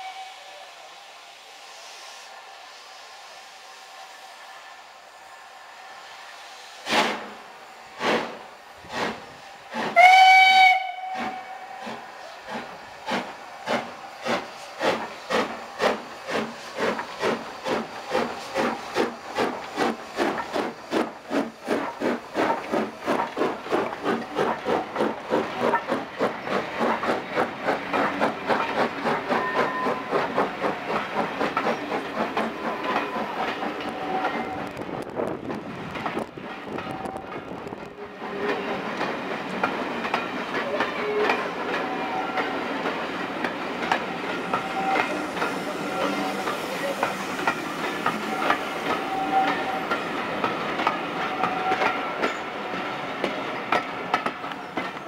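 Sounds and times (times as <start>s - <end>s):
steam whistle blast: 0.0s - 0.9s, 10.0s - 12.0s, 44.5s - 46.5s, 48.2s - 49.9s, 51.3s - 52.0s
steam locomotive exhaust chuffs: 0.0s - 55.0s.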